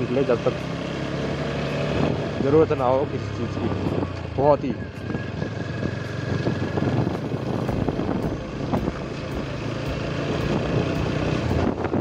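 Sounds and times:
motorcycle engine running: 0.0s - 12.0s
wind noise on microphone: 1.8s - 2.8s, 3.6s - 12.0s.

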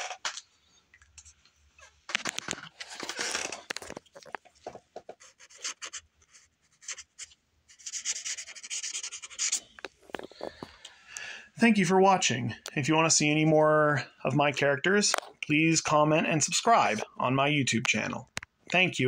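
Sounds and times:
pen scratching on paper: 5.1s - 9.7s.

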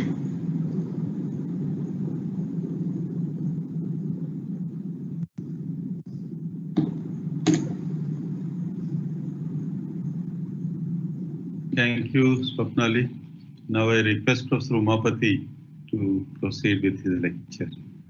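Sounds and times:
low rumbling room noise: 0.0s - 18.0s.

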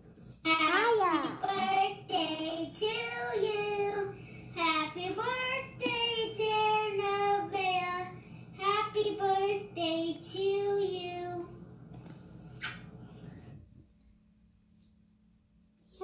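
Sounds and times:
child singing through tv speakers: 0.5s - 11.6s.

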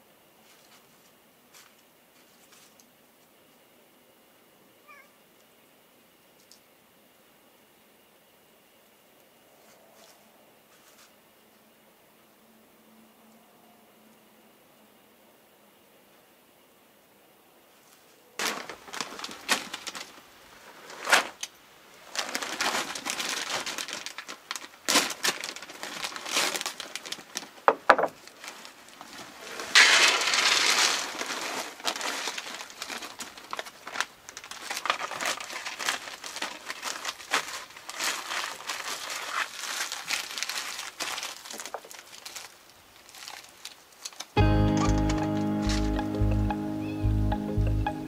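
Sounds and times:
rustling and crinkling: 0.4s - 3.4s, 9.6s - 11.3s, 17.7s - 46.0s.

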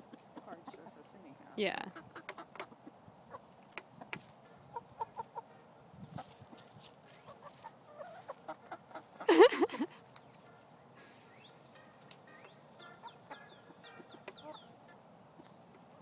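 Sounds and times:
chickens clucking: 0.0s - 11.0s, 11.8s - 16.0s
chicken squawk: 7.2s - 9.3s, 12.4s - 15.0s.

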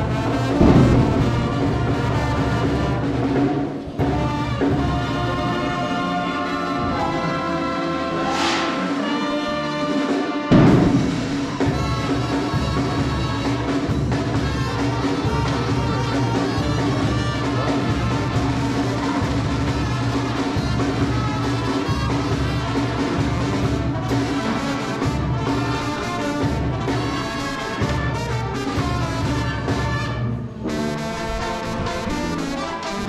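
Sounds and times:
loud hit: 0.6s - 2.0s, 8.2s - 9.2s, 10.5s - 11.9s.

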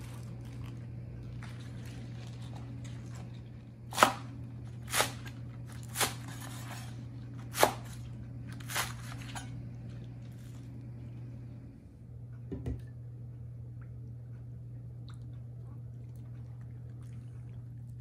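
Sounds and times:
cleaver chopping on cutting board: 7.5s - 8.0s.

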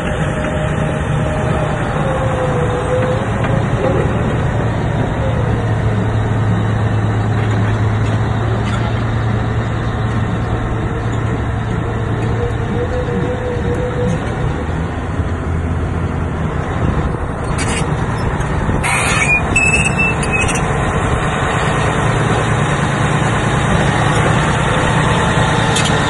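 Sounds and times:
bulldozer diesel engine running: 0.0s - 26.0s
short high-pitched squeal: 18.8s - 20.6s.

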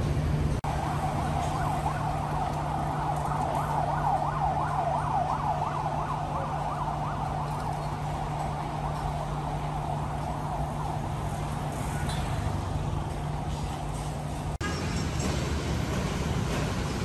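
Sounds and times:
street traffic: 0.0s - 17.0s
siren yelping: 0.6s - 11.8s.

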